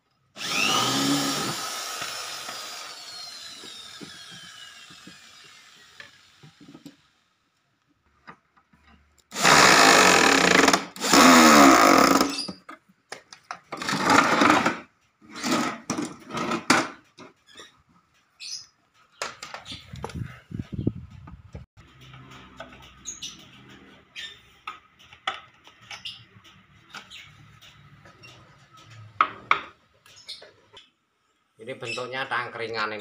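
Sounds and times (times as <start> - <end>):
electric drill driving screws: 0.4 - 7.0, 9.3 - 12.5, 13.8 - 14.8.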